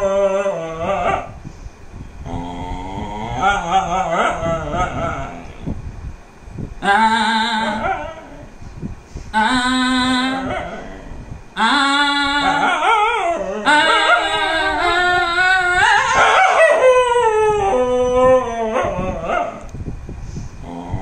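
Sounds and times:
dog howling: 0:00.0 - 0:01.4, 0:02.3 - 0:05.5, 0:06.8 - 0:08.5, 0:09.4 - 0:19.7.

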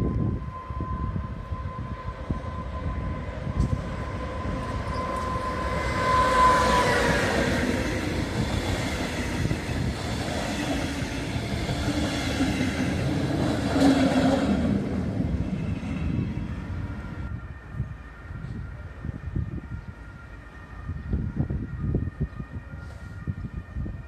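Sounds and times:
locomotive whine: 0:00.0 - 0:24.0
train wheels rumbling and clacking: 0:03.3 - 0:16.6.

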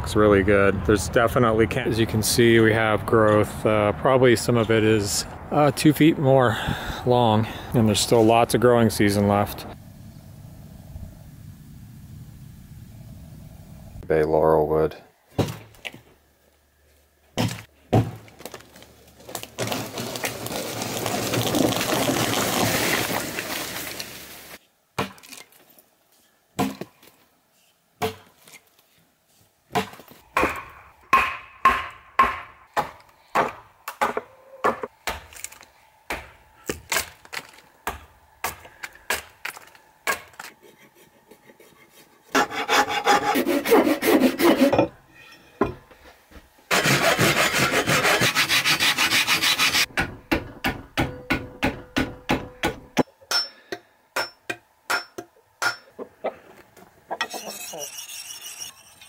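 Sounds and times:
axe chopping wood: 0:29.7 - 0:35.4, 0:36.1 - 0:40.4.

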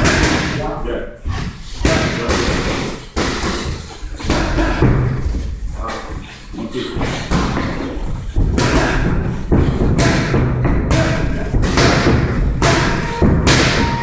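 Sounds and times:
gloves punching pads: 0:08.4 - 0:14.0.

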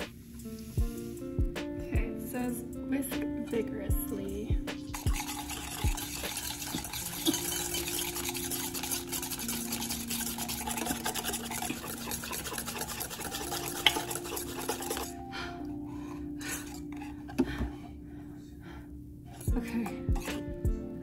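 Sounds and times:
utensil scraping metal bowl: 0:04.9 - 0:15.2, 0:16.5 - 0:17.4, 0:19.3 - 0:20.5.

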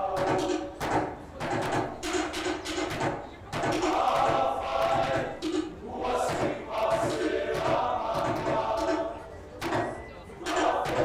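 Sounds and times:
men singing together: 0:03.7 - 0:09.3, 0:10.5 - 0:11.0.

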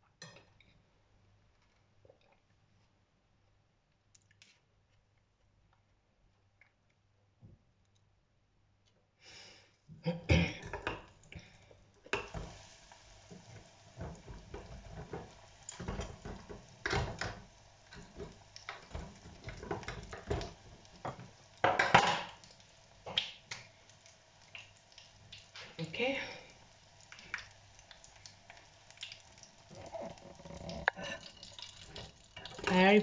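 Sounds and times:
hot oil sizzling and bubbling: 0:10.6 - 0:33.0.

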